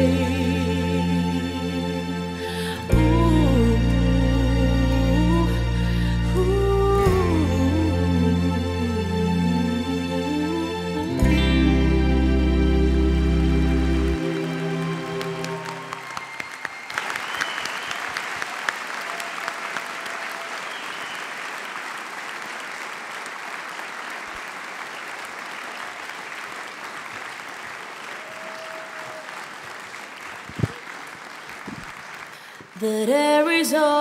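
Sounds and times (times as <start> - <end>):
audience applauding: 13.5 - 33.0.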